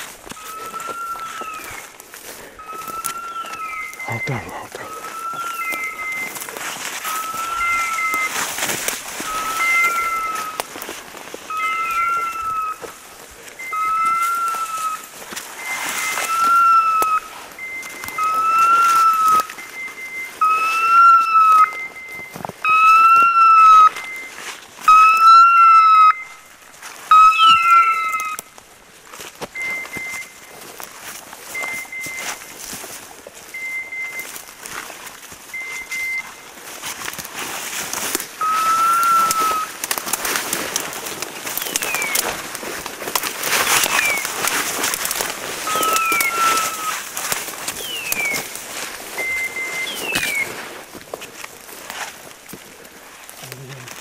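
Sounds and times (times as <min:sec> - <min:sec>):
twigs snapping: 0:00.0 - 0:19.8, 0:36.5 - 0:54.0
brush rustling: 0:00.0 - 0:54.0
two-tone beeper collar signal: 0:09.3 - 0:10.6, 0:13.6 - 0:26.4, 0:29.6 - 0:30.5, 0:31.5 - 0:32.5, 0:33.5 - 0:34.5, 0:35.5 - 0:36.4, 0:38.4 - 0:39.7, 0:45.6 - 0:47.0.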